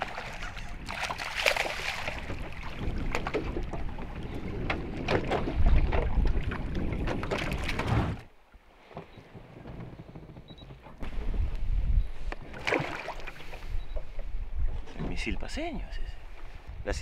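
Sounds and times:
fish thrashing and splashing: 0.0s - 3.8s
wind rumbling on microphone: 0.0s - 8.3s, 9.1s - 12.6s, 13.4s - 17.0s.

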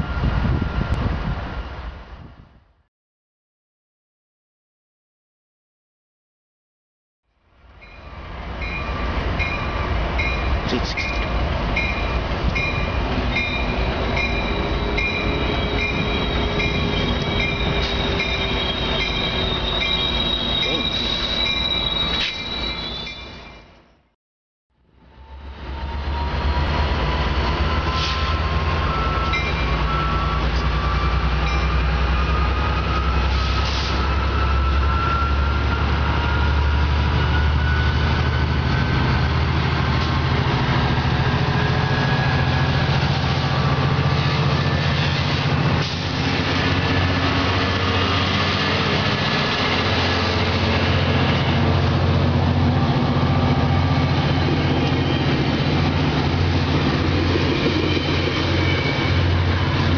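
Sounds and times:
train engine drone: 7.4s - 24.1s, 24.8s - 59.9s.

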